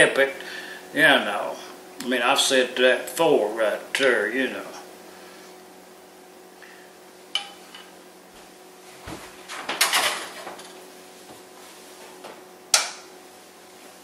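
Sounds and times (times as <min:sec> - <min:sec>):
pan clattering onto stovetop: 0:09.7 - 0:10.7.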